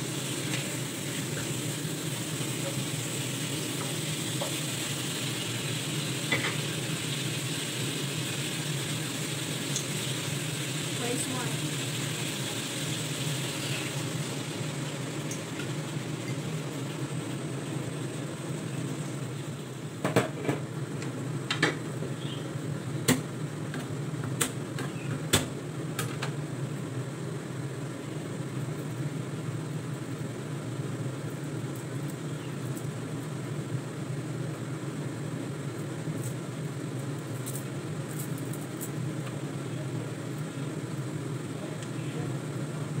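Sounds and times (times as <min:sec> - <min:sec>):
low kitchen hum: 0:00.0 - 0:43.0.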